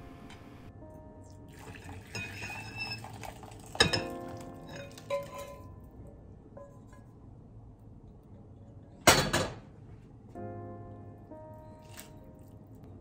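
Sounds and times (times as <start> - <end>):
soft background music: 0.0 - 7.4, 10.1 - 13.0
liquid pouring into bowl: 1.5 - 5.6
ceramic clink: 2.0 - 5.8.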